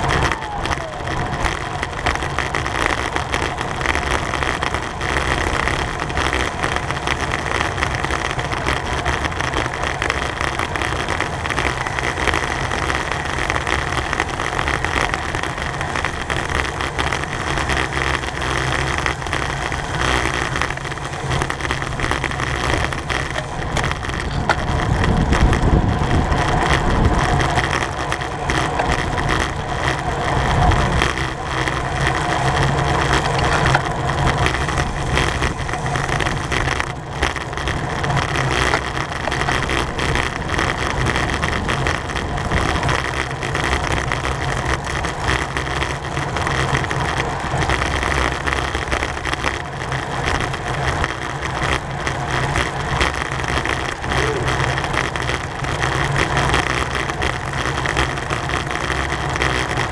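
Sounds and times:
bicycle road rumble: 0:00.0 - 0:59.9
wind rush: 0:23.6 - 0:27.6.

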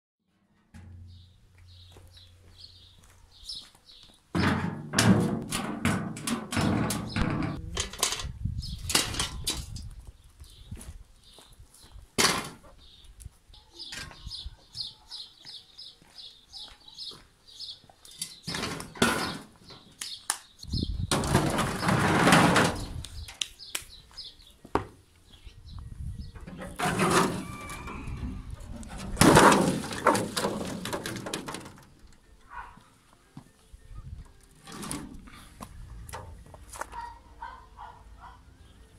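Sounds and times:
metal scraping on concrete: 0:00.3 - 0:01.9, 0:04.4 - 0:08.3, 0:21.1 - 0:23.0, 0:26.4 - 0:32.0, 0:34.6 - 0:36.4
metal parts knocking on concrete: 0:04.4 - 0:09.8.

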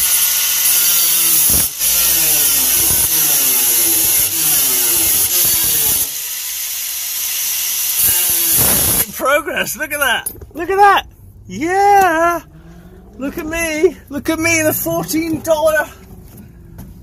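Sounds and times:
angle grinder cutting sheet metal: 0:00.0 - 0:09.2.

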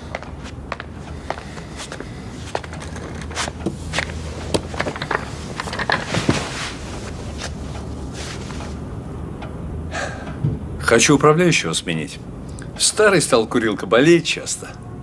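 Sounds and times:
footsteps: 0:00.0 - 0:08.8
low room hum: 0:00.0 - 0:15.0
clothing rustle: 0:01.3 - 0:08.9
office chair pulled out: 0:02.5 - 0:08.8.

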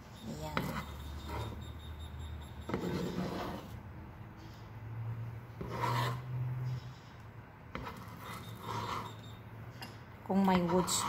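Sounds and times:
metal spoon scraping a frying pan: 0:00.1 - 0:03.8, 0:05.6 - 0:07.1, 0:07.8 - 0:11.0.

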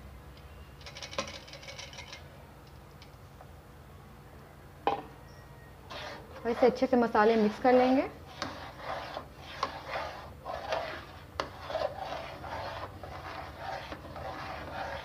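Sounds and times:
metal spoon scraping a pot: 0:05.9 - 0:15.0.

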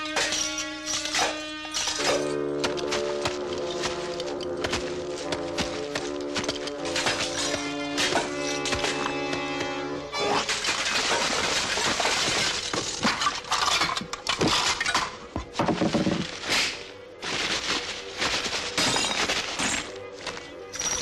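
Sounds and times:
clattering and shattering effects: 0:00.0 - 0:03.7, 0:06.4 - 0:09.2, 0:10.1 - 0:16.8, 0:17.4 - 0:20.0
background music: 0:00.0 - 0:21.0.

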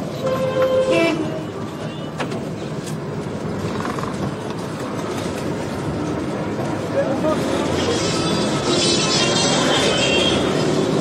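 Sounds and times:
street traffic rumble: 0:00.0 - 0:11.0
vehicle horn: 0:00.2 - 0:02.0.

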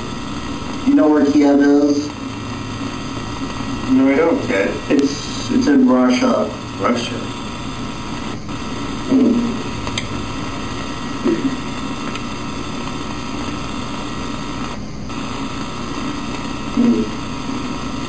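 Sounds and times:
electrical buzz and hiss: 0:00.0 - 0:18.0
short vocal sound: 0:09.1 - 0:09.7, 0:11.2 - 0:11.7, 0:16.8 - 0:17.2.

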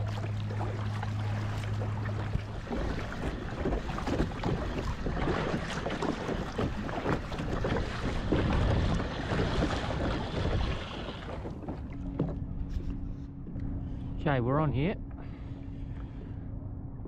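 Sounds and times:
paddle strokes splashing in water: 0:00.0 - 0:13.3
wind buffeting microphone: 0:01.3 - 0:17.0.

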